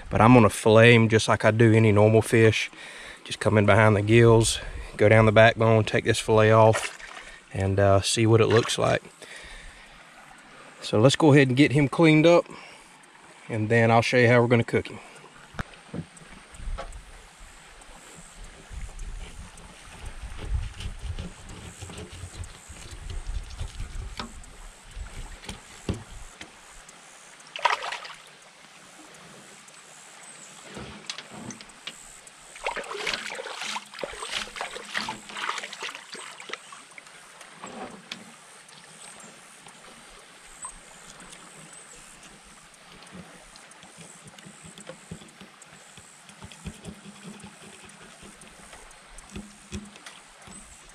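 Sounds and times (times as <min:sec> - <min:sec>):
wind rumbling on microphone: 0:16.4 - 0:17.6, 0:18.3 - 0:26.4
fillet knife scraping fish: 0:20.3 - 0:24.0, 0:46.4 - 0:48.6.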